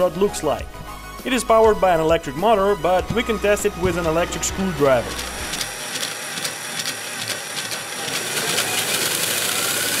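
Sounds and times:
cordless drill spinning: 3.7s - 10.0s
rapid mechanism clicking: 5.2s - 10.0s.

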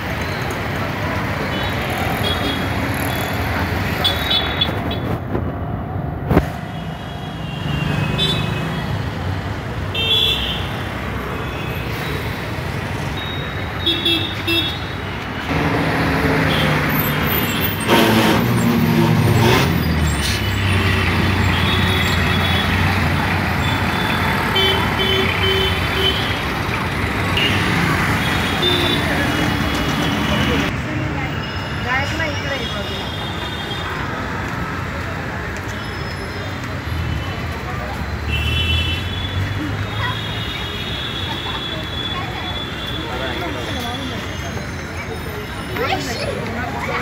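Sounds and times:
engines passing: 0.0s - 9.9s, 14.4s - 32.7s, 41.2s - 47.0s.

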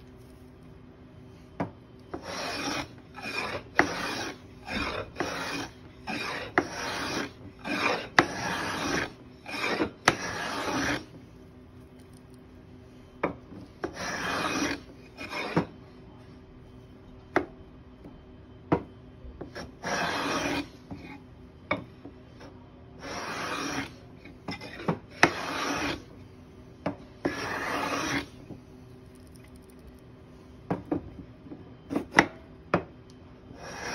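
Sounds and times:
hand plane cutting shavings: 2.2s - 11.0s, 14.0s - 15.6s, 19.8s - 20.7s, 23.0s - 23.9s, 24.6s - 26.0s, 27.3s - 28.3s.

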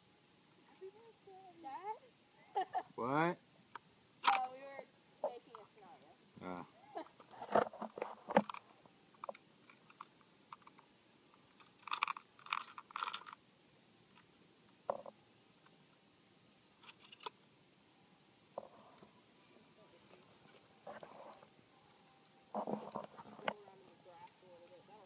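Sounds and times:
shotgun action clicking: 4.2s - 4.5s.

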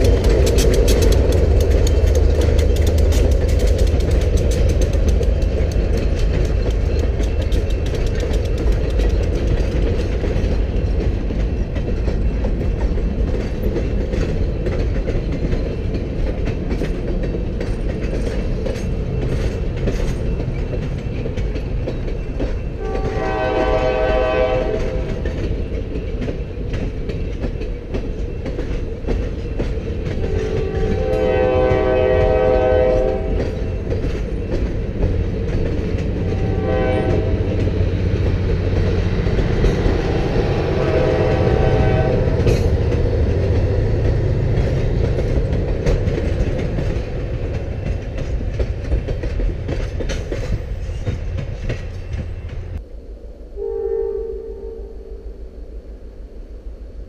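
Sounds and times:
wheel clicks over rail joints: 0.0s - 22.8s, 42.3s - 52.7s
train cars rumbling past: 0.0s - 57.0s
locomotive horn blasts: 22.8s - 25.2s, 30.2s - 33.5s, 36.2s - 37.6s, 40.6s - 42.5s, 53.6s - 55.4s.

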